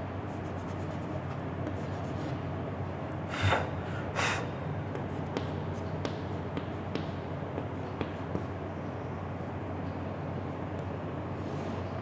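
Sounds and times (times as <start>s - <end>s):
chalk scraping strokes: 0.3s - 2.4s
chalk scratching on blackboard: 0.3s - 2.4s.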